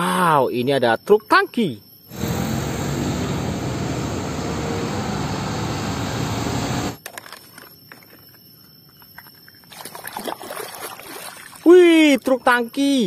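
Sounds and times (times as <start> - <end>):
road noise: 2.1 - 7.0
truck diesel engine running: 2.1 - 7.0
water sloshing: 9.2 - 11.7.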